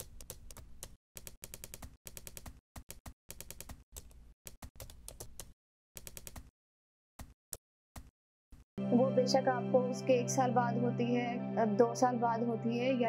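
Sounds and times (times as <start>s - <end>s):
keyboard typing clicks: 0.0s - 6.5s.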